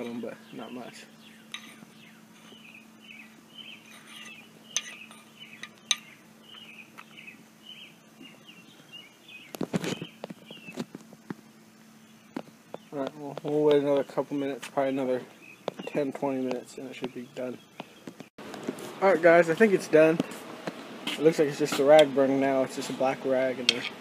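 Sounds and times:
metal rod clinking on iron: 1.5s - 1.8s, 3.9s - 6.1s.

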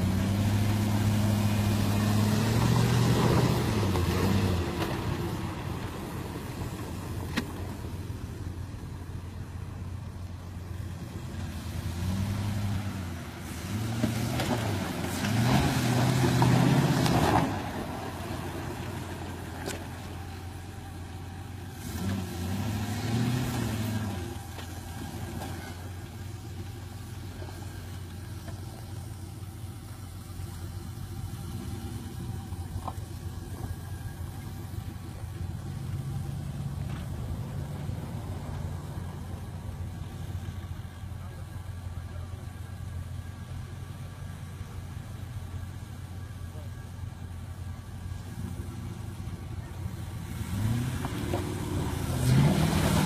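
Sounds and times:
engine revving: 0.0s - 5.7s, 10.9s - 20.5s, 21.6s - 28.8s, 48.2s - 53.0s.

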